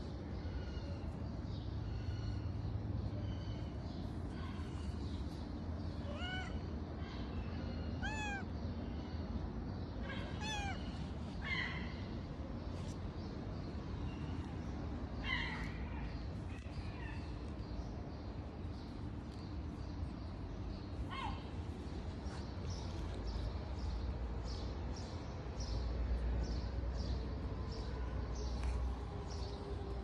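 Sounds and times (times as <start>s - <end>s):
cat meowing: 6.1s - 6.6s, 8.0s - 8.5s, 10.2s - 10.9s.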